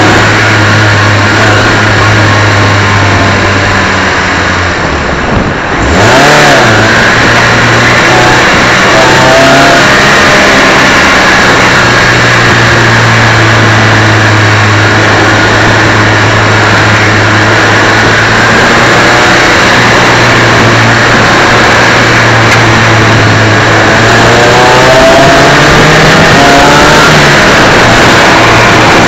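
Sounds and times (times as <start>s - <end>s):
dense rush of noise: 0.0s - 29.0s
race car engine running loud: 0.0s - 29.0s.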